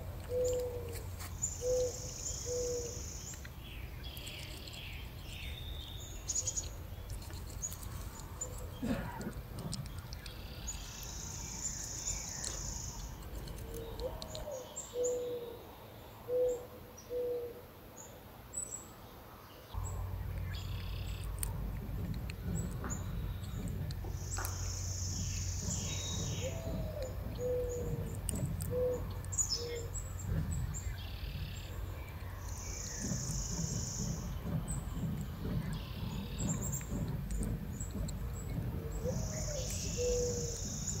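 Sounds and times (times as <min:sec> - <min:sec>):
dove cooing: 0:00.3 - 0:03.0, 0:08.4 - 0:09.8, 0:13.6 - 0:15.6, 0:16.3 - 0:17.6, 0:25.7 - 0:30.4, 0:38.8 - 0:40.6
low steady hum: 0:17.6 - 0:41.0.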